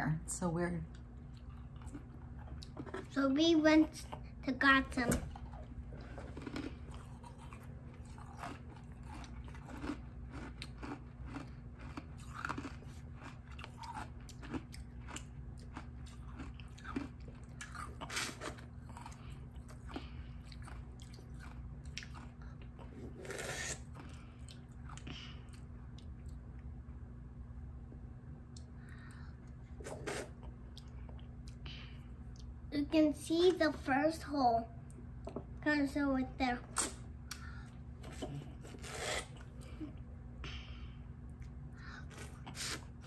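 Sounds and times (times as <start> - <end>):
people chewing and biting: 5.4 - 26.6
low hum: 36.3 - 43.0.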